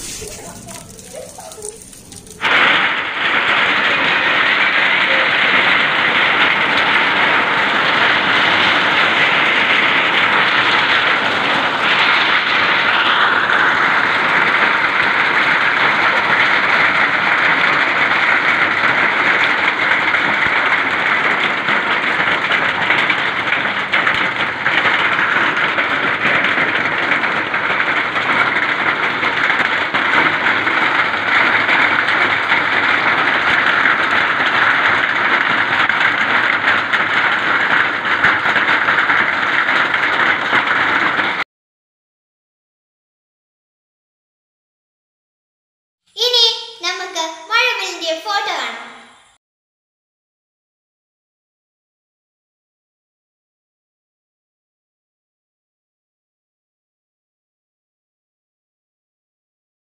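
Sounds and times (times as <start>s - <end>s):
hail striking ground and roofs: 0.0s - 41.4s, 46.2s - 49.0s.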